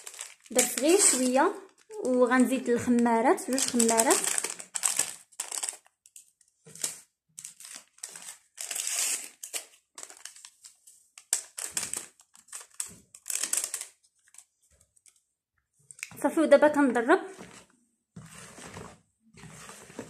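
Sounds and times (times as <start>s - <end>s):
paper sachets rustling: 0.0s - 15.2s.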